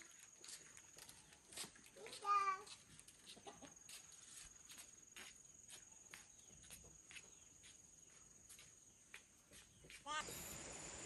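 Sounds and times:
insects trilling: 0:09.8 - 0:11.0.

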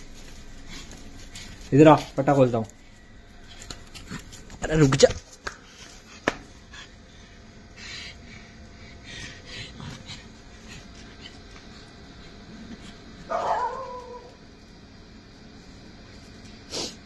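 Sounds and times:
dog barking drawn-out: 0:13.3 - 0:14.4.

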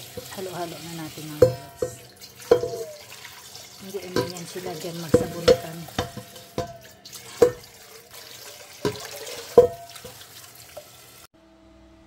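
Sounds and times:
tap water running: 0:00.0 - 0:11.3
vegetables being washed: 0:00.0 - 0:11.3
sharp ringing knocks: 0:01.4 - 0:03.0, 0:05.2 - 0:07.7, 0:09.6 - 0:10.1.

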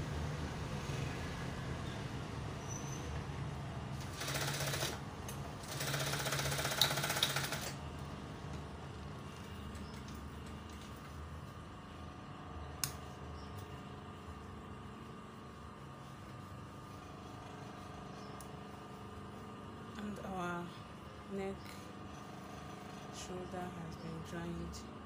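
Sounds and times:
sewing machine stitching: 0:04.0 - 0:05.0, 0:05.6 - 0:07.8.

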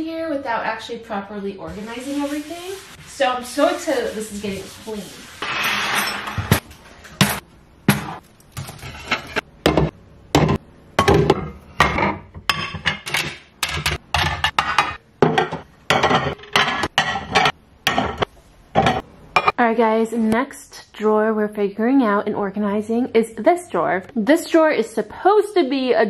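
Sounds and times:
dishes knocking and clinking: 0:06.0 - 0:19.6.

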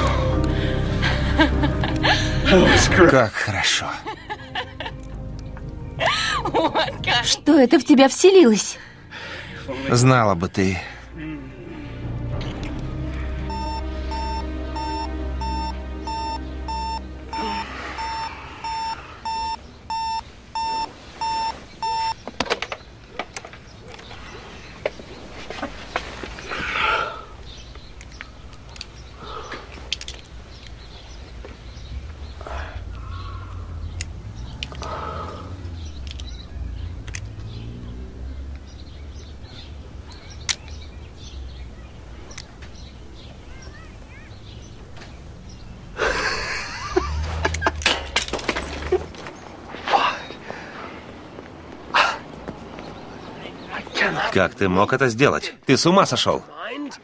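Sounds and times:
small birds chirping: 0:07.0 - 0:47.8, 0:48.7 - 0:57.0
alarm clock beeping: 0:13.5 - 0:22.2.

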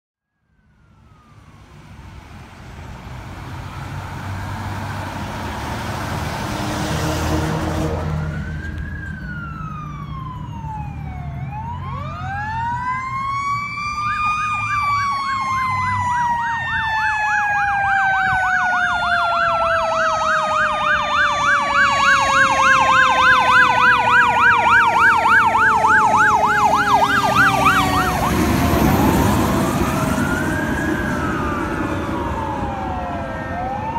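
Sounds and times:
fire engine running noise: 0:00.4 - 0:33.9
electronic siren wailing: 0:06.8 - 0:33.9
fast electronic yelp siren: 0:07.8 - 0:33.9.

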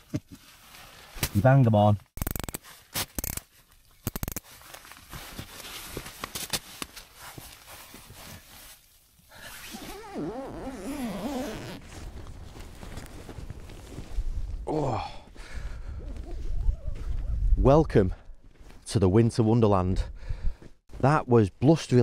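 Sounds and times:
sharp clicks: 0:02.2 - 0:04.4
nylon fabric rustling: 0:04.5 - 0:14.4
zip being pulled: 0:09.4 - 0:11.8.

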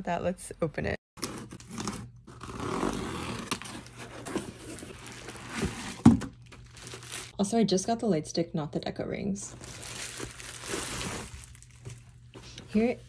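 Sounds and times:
cardboard and bubble wrap rustling: 0:01.2 - 0:07.4, 0:09.5 - 0:12.2.

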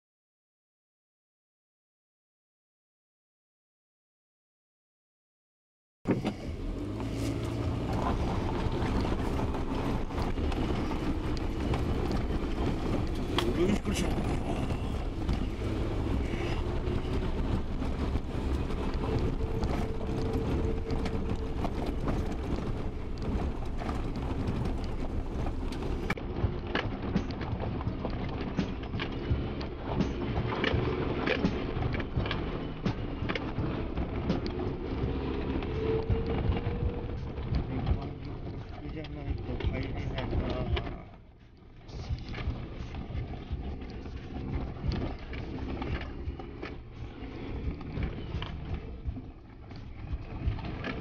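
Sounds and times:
car engine humming: 0:06.1 - 0:40.3.

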